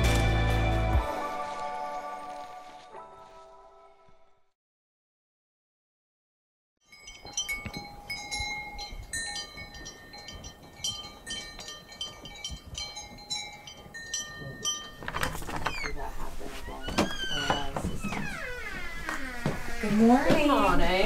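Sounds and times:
wind chimes tinkling: 0:06.8 - 0:16.0.

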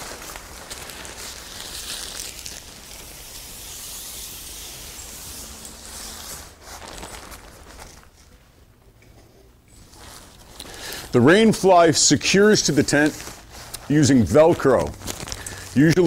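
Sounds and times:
tent fabric rustling: 0:00.0 - 0:08.7, 0:09.7 - 0:16.0.

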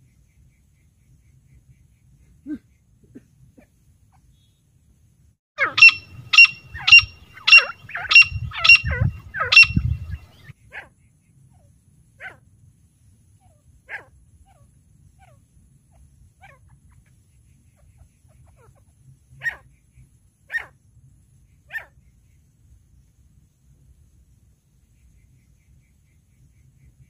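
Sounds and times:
francolin calling sharp notes: 0:05.6 - 0:10.4.

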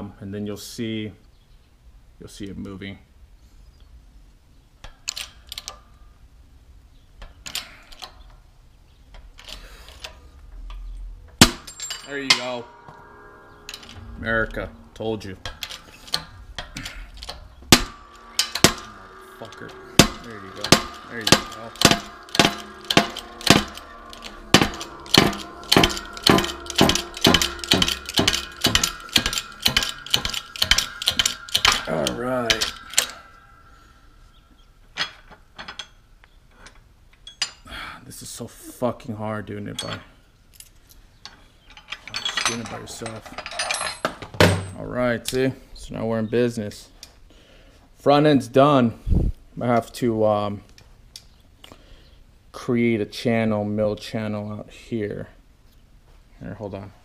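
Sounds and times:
hydraulic press metallic clanks: 0:09.4 - 0:36.0, 0:41.3 - 0:44.8
metallic clicks and knocks: 0:15.4 - 0:33.3.

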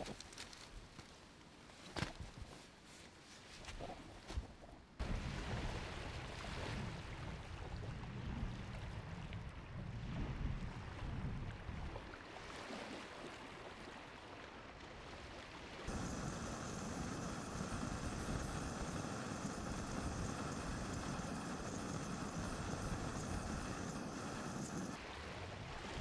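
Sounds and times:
wind: 0:00.0 - 0:26.0
small waves on a shore: 0:05.0 - 0:26.0
gas camping stove hissing: 0:15.9 - 0:25.0.

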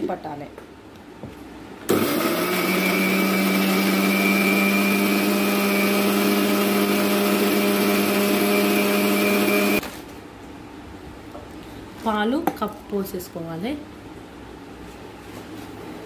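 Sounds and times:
mixer grinder motor whining: 0:01.9 - 0:09.8.

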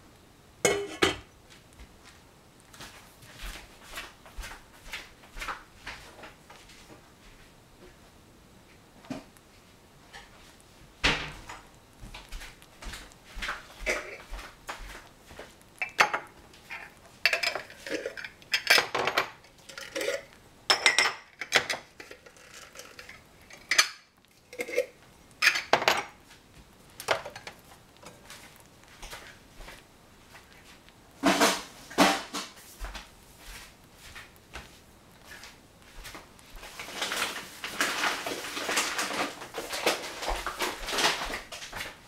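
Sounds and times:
jars and pots clinking: 0:00.6 - 0:01.3, 0:15.8 - 0:24.0.

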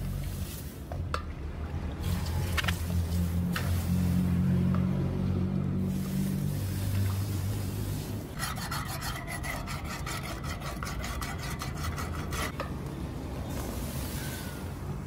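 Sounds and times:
sharpening tool strokes on blade: 0:08.4 - 0:12.5.

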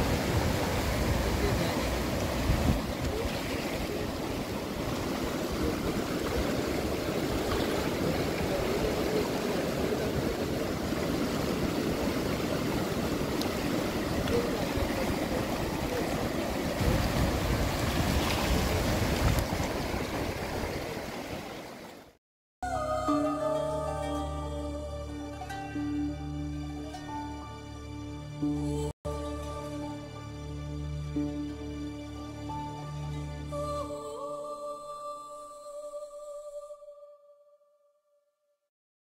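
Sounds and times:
wind on microphone: 0:00.0 - 0:21.1
river rushing through rapids: 0:00.0 - 0:22.0.

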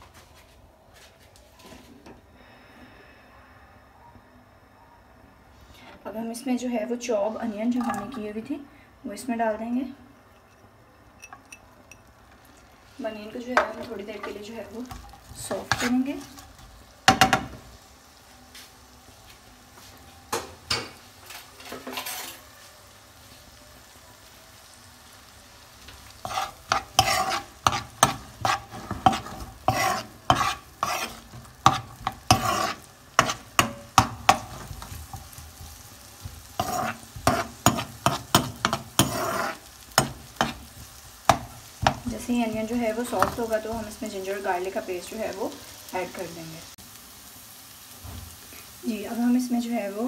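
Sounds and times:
onions sizzling in a pan: 0:05.6 - 0:10.5, 0:11.1 - 0:50.0
metal spoon scraping a pan: 0:13.4 - 0:17.5, 0:21.2 - 0:22.5, 0:25.9 - 0:45.2.

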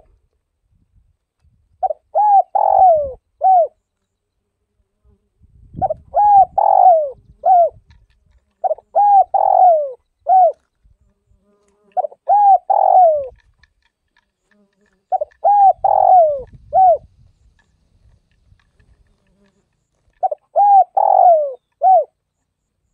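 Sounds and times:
dove cooing: 0:01.8 - 0:03.8, 0:05.8 - 0:07.9, 0:08.5 - 0:10.7, 0:11.9 - 0:13.4, 0:14.5 - 0:17.1, 0:18.8 - 0:22.2.

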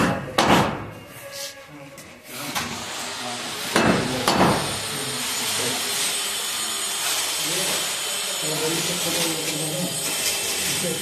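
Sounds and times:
hammer striking wooden frame: 0:00.0 - 0:00.9, 0:03.7 - 0:04.7.

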